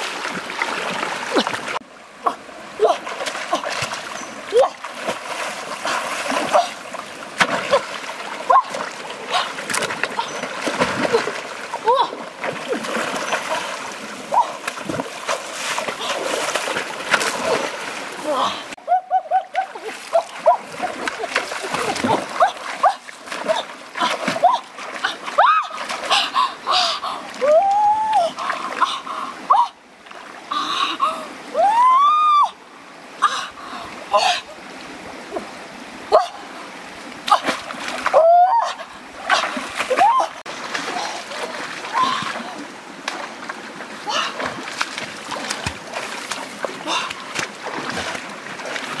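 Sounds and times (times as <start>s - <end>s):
footsteps splashing in stream: 0.0s - 1.8s, 2.5s - 18.8s, 19.4s - 27.5s, 37.0s - 49.0s
running water: 0.0s - 49.0s
woman crying out excitedly: 31.6s - 32.6s.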